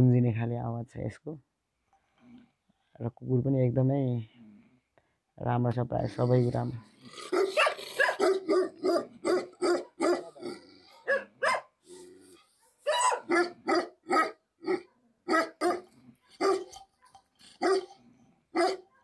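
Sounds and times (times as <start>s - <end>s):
dog barking deeply: 6.1s - 11.8s, 12.6s - 18.9s.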